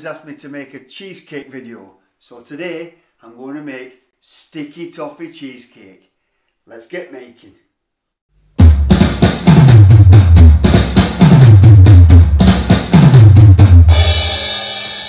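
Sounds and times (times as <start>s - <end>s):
drum kit beat: 8.6s - 15.0s
cymbal crash: 13.9s - 15.0s.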